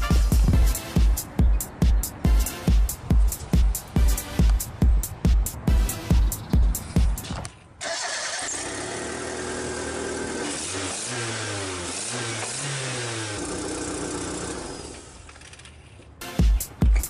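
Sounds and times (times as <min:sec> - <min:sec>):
car engine idling and revving: 0:06.2 - 0:15.8.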